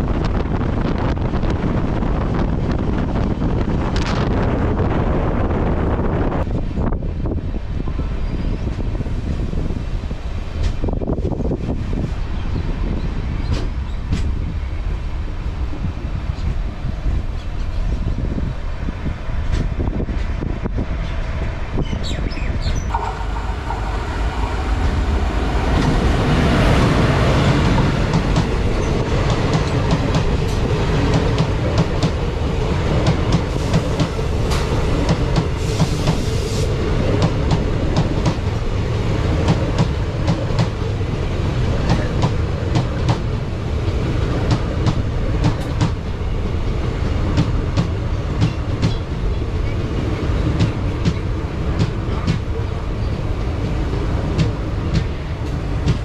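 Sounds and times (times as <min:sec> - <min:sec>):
passing train wheels clattering: 0:06.0 - 0:56.0
train wheels clickety-clack: 0:10.5 - 0:11.4, 0:13.0 - 0:14.5, 0:19.4 - 0:21.4, 0:22.0 - 0:53.3, 0:54.2 - 0:56.0.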